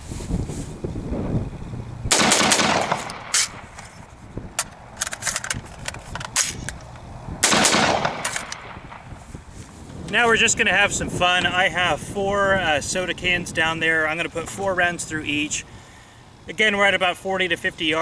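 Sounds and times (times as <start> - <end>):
rifle shots: 2.1 - 3.8, 7.4 - 9.1
metallic magazine clicks: 2.4 - 8.8.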